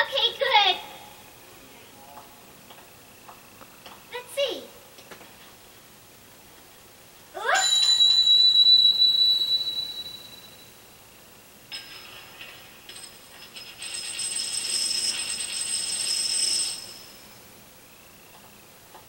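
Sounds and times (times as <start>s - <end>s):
coin ringing: 7.5s - 10.7s, 11.7s - 17.4s
coin spinning on hard floor: 11.7s - 17.3s.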